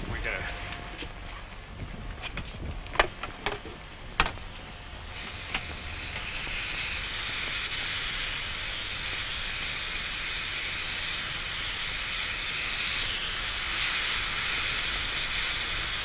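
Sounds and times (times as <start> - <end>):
helicopter engine whine: 0.0 - 16.0
rushing rotor noise: 0.0 - 16.0.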